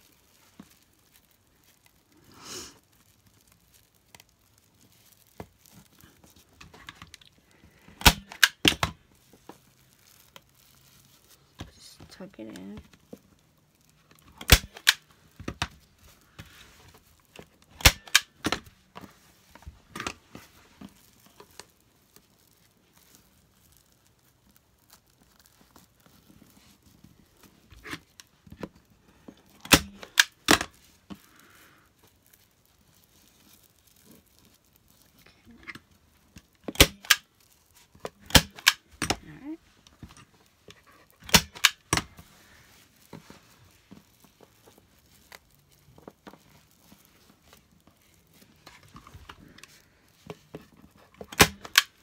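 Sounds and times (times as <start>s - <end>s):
fabric rustling: 0.0s - 8.0s, 9.0s - 14.4s, 15.0s - 29.6s, 30.3s - 36.6s, 37.2s - 41.2s, 41.8s - 51.2s
staple gun snapping: 8.0s - 8.9s, 14.4s - 15.0s, 17.8s - 18.6s, 29.6s - 30.6s, 36.7s - 37.2s, 38.3s - 39.2s, 41.2s - 42.0s, 51.3s - 51.9s.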